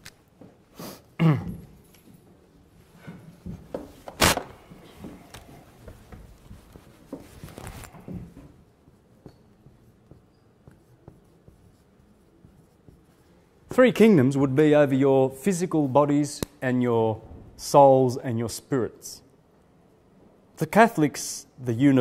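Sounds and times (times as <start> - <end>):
eraser scuffing whiteboard: 5.0 - 13.6.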